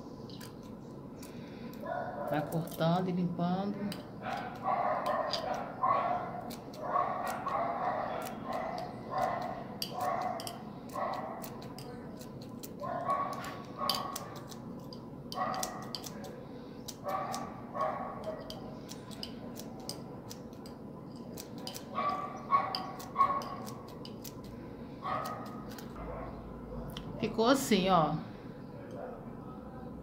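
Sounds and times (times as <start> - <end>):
dog barking: 1.8 - 2.5, 4.2 - 11.5, 12.8 - 14.3, 15.4 - 15.9, 17.0 - 18.5, 21.9 - 23.7, 25.0 - 27.0
scissors snipping: 6.4 - 24.5, 25.1 - 26.0.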